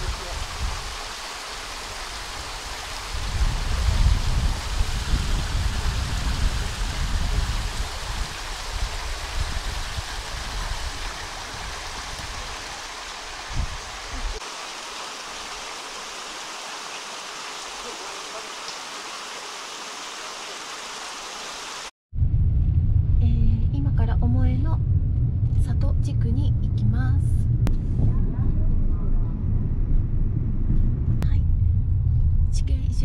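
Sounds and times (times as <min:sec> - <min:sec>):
wind buffeting microphone: 0:00.0 - 0:01.0, 0:02.1 - 0:14.4
stream water flowing: 0:00.0 - 0:03.7, 0:04.4 - 0:21.9.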